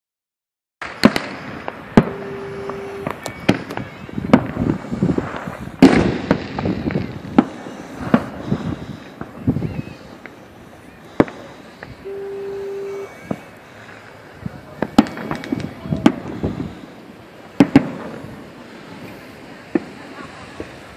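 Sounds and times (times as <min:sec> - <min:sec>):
fireworks bangs: 0:00.8 - 0:20.9
steady tone: 0:02.0 - 0:03.2, 0:12.0 - 0:13.5.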